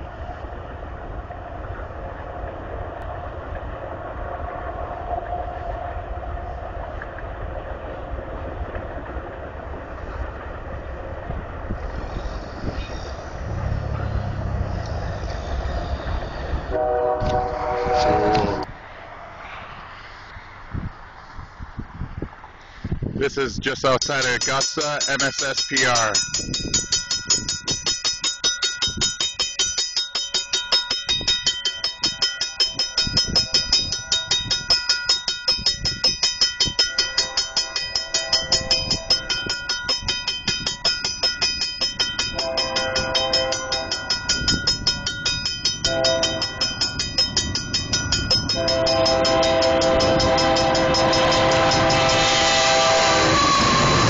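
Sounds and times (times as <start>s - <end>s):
locomotive air horn: 16.6s - 18.7s, 42.4s - 44.0s, 45.9s - 46.6s, 48.5s - 54.0s
crossing bell ringing: 23.3s - 54.0s.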